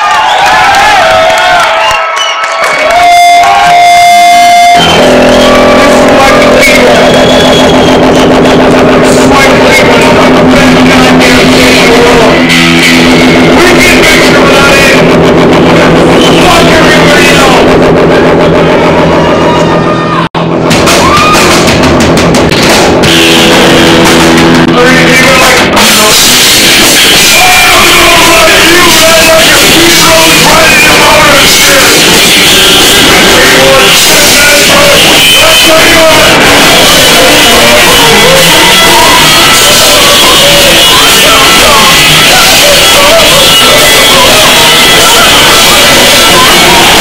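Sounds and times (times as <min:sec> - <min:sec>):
drum kit: 0:02.8 - 0:19.6, 0:20.4 - 0:47.0
man singing: 0:03.7 - 0:15.1, 0:24.7 - 0:47.0
shouted sung lead vocal: 0:25.2 - 0:47.0.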